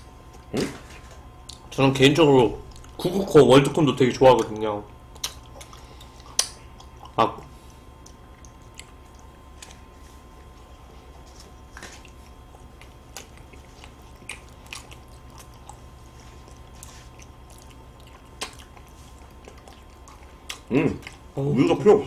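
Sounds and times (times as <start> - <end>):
steady low hum: 0.0 - 22.0
chewing: 4.5 - 21.3.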